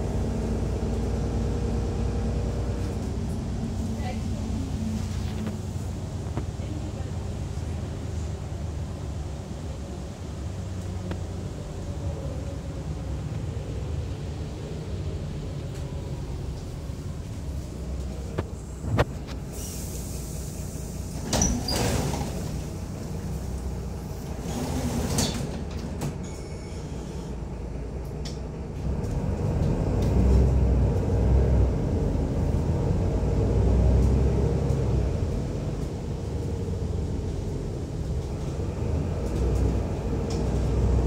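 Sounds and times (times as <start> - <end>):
bus engine rumble: 0.0 - 41.0
short hisses: 19.5 - 21.0.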